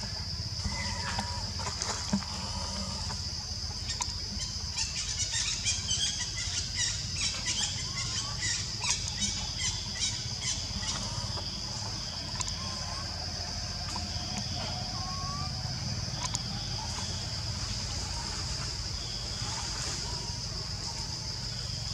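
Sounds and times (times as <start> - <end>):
high insect drone: 0.0 - 21.9.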